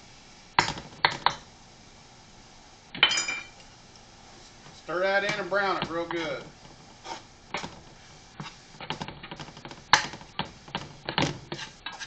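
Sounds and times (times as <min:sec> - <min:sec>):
metal spatula scraping a skillet: 0:06.0 - 0:06.4, 0:07.0 - 0:07.3, 0:08.0 - 0:08.6, 0:11.4 - 0:12.0.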